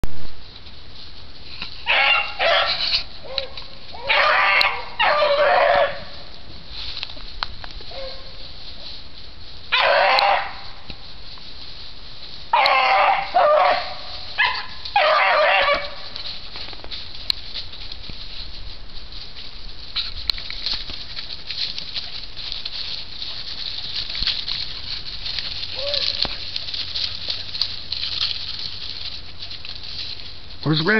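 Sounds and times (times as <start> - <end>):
dry leaves and twigs rustling: 0.1 - 30.9
dog baying: 1.8 - 6.2, 7.9 - 8.4, 9.7 - 10.6, 12.5 - 16.1, 25.5 - 27.5
twigs snapping: 6.2 - 8.3, 12.6 - 13.0, 19.2 - 30.4.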